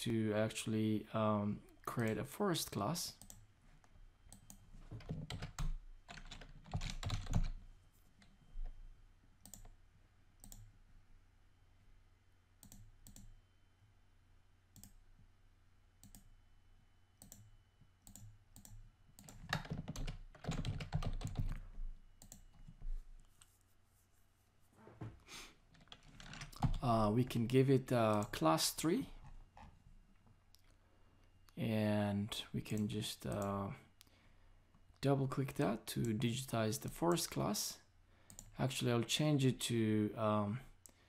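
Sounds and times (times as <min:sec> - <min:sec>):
typing on a computer keyboard: 0:04.3 - 0:07.6, 0:17.2 - 0:21.6, 0:25.8 - 0:26.8
mouse clicks: 0:09.4 - 0:09.8.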